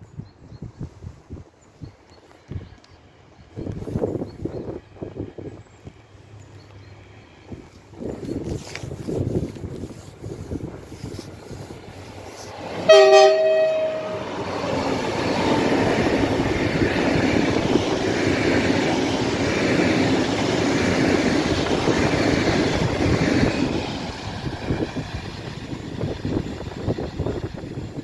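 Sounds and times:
train passing at speed: 0:01.5 - 0:28.0
two-tone train horn: 0:12.8 - 0:14.5.

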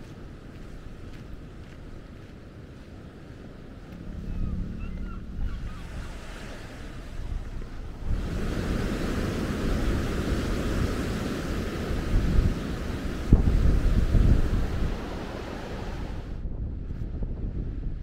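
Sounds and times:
wind buffeting microphone: 0:00.0 - 0:18.0
surf breaking on beach: 0:04.0 - 0:16.4.

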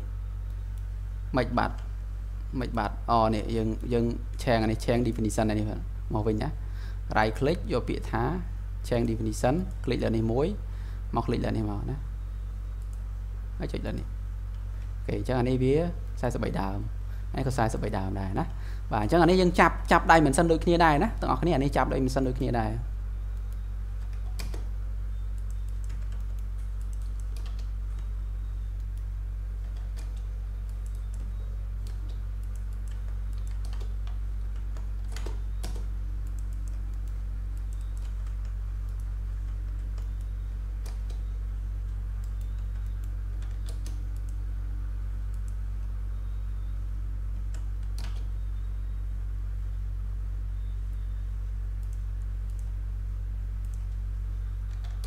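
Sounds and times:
steady low hum: 0:00.0 - 0:55.0
keyboard and mouse clicks: 0:23.3 - 0:24.7, 0:25.3 - 0:28.1, 0:28.7 - 0:41.3, 0:42.2 - 0:44.4, 0:47.5 - 0:48.3, 0:51.8 - 0:52.7, 0:54.7 - 0:55.0.

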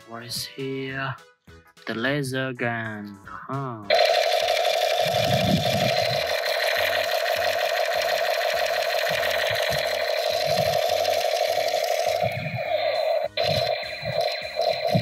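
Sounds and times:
toy laser gun buzzing rattle: 0:03.9 - 0:15.0.

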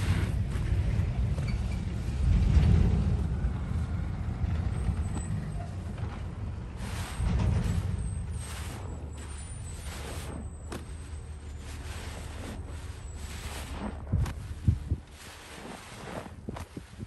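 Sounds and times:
sponge squelching in bucket: 0:06.8 - 0:17.0.

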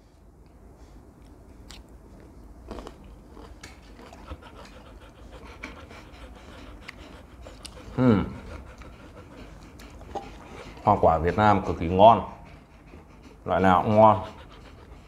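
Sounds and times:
dogs chewing softly: 0:00.0 - 0:15.0
dogs panting: 0:03.6 - 0:15.0.

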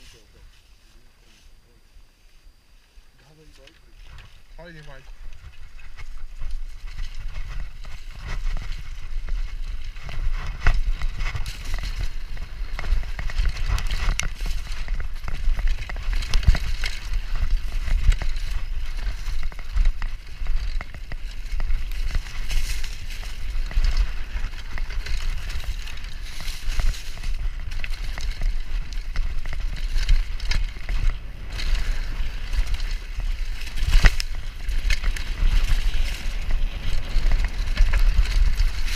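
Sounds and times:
wind rumbling on microphone: 0:00.0 - 0:38.9
tyres rolling over dirt: 0:03.4 - 0:38.9
bike rattling and knocking: 0:04.1 - 0:38.9.

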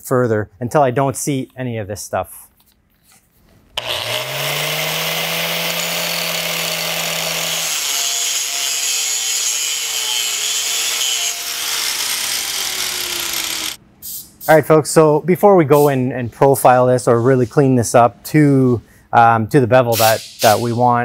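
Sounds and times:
angle grinder whining: 0:03.8 - 0:13.8
grinder disc grinding steel: 0:03.8 - 0:13.8.

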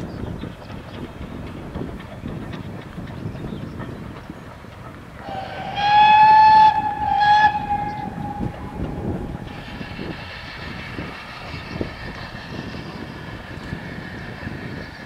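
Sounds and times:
distant train running: 0:00.0 - 0:15.0
steam locomotive whistle: 0:05.2 - 0:11.1.

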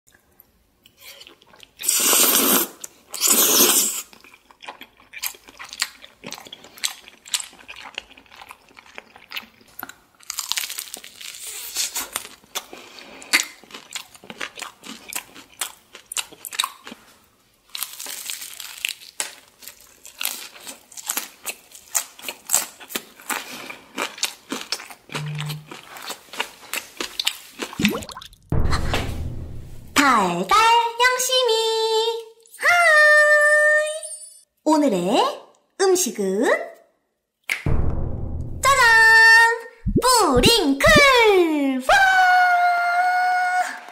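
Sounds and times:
crunching and chewing fried chicken: 0:00.9 - 0:27.8
slurping noodles: 0:01.0 - 0:04.1.

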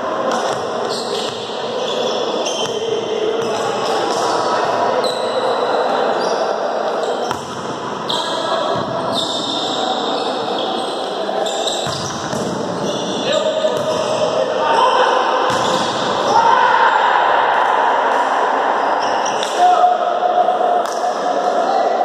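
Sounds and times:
volleyball hits and bounces: 0:07.3 - 0:07.8, 0:11.8 - 0:12.7, 0:15.5 - 0:16.2.

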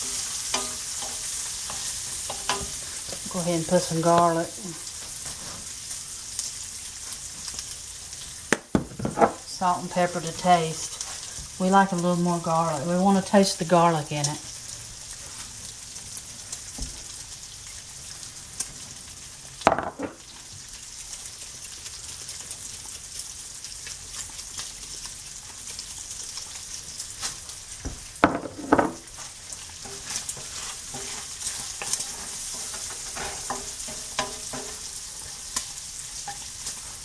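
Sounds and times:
food sizzling in a pan: 0:00.0 - 0:37.0
utensil knocking on pan: 0:08.5 - 0:09.4, 0:19.7 - 0:20.2, 0:28.2 - 0:29.0.

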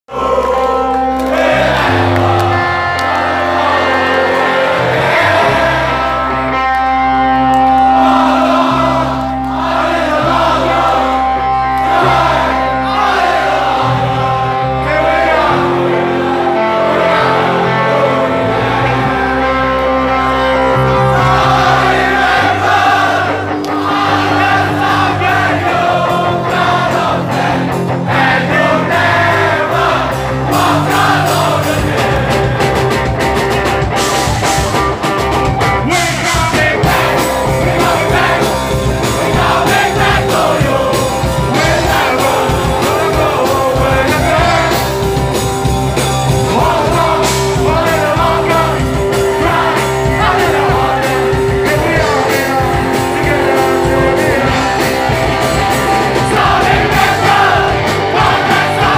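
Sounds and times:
crowd singing along: 0:00.1 - 0:58.9
live hardcore band playing: 0:00.1 - 0:58.9
person singing: 0:07.6 - 0:30.0, 0:35.8 - 0:45.3, 0:46.1 - 0:58.9.

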